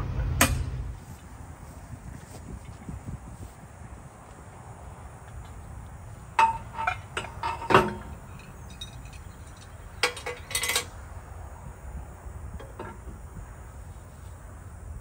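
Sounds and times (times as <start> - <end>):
metal pipe clanking on gate: 6.4 - 10.9.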